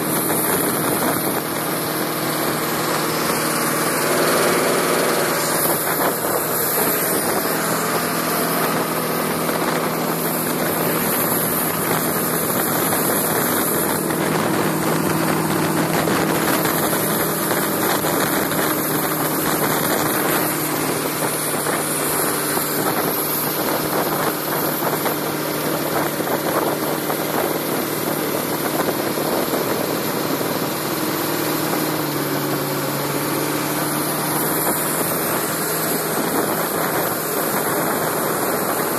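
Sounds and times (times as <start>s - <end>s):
boat engine running: 0.0s - 38.9s
water rushing off hull: 0.0s - 38.9s.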